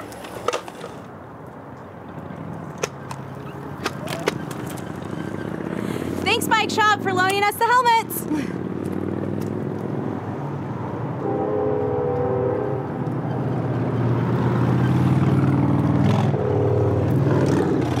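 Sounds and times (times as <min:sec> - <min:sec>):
motor vehicle engine running: 0:03.0 - 0:10.0, 0:11.5 - 0:18.0.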